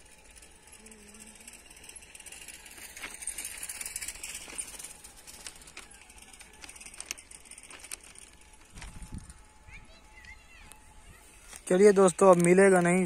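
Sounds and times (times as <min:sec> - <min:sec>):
steady high outdoor hiss: 0:00.0 - 0:13.0
footsteps crunching on stones: 0:10.2 - 0:13.0.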